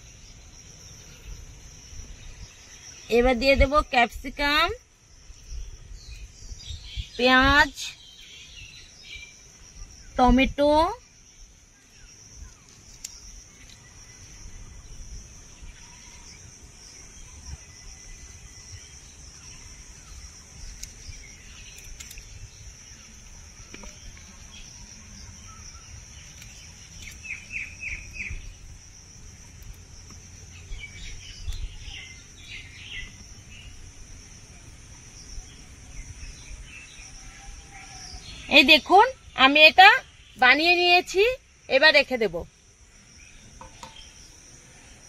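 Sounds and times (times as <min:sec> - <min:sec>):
insects droning: 0:00.0 - 0:45.0
bird chirps: 0:17.0 - 0:28.7.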